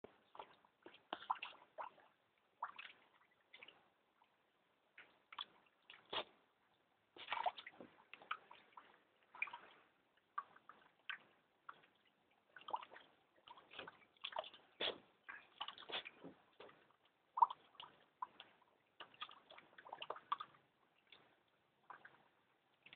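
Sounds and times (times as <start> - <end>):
water splashing in a plastic bowl: 0.0 - 22.9
dog pawing water bowl: 10.4 - 22.1.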